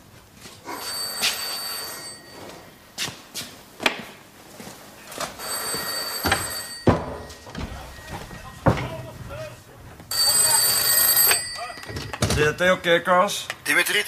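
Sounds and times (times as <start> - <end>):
telephone ringing: 0.7 - 2.8, 5.4 - 12.8.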